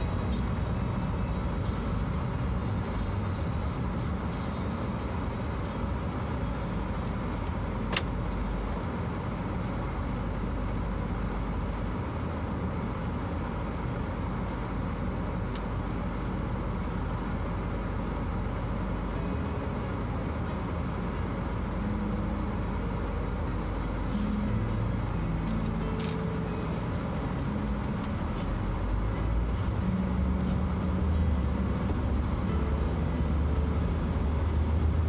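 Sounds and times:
car idling hum: 0.0 - 35.0
sharp click: 7.9 - 8.1.

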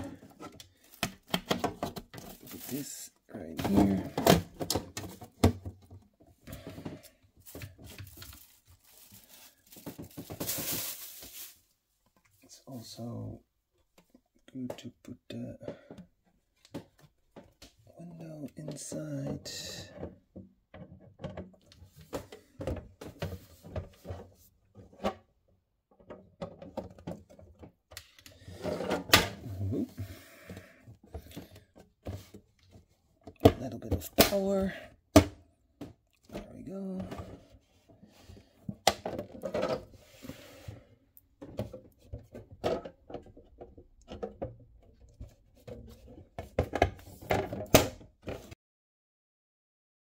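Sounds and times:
plastic parts clicking and scraping: 0.0 - 3.0, 35.8 - 40.3
plastic parts knocking and scraping: 0.0 - 12.5, 13.8 - 48.6.

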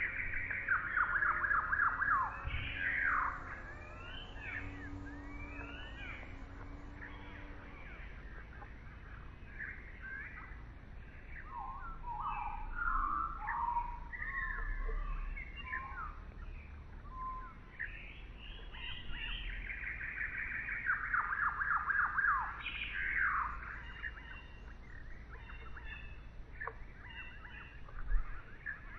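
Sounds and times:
bird trill: 0.0 - 28.9
songbirds singing and chirping: 0.0 - 28.9.

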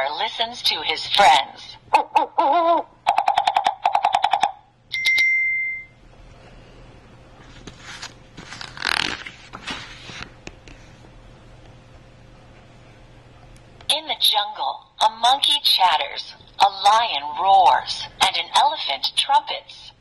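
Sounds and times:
electronic woodpecker tapping: 3.1 - 4.6
paper page turning: 7.4 - 10.9.

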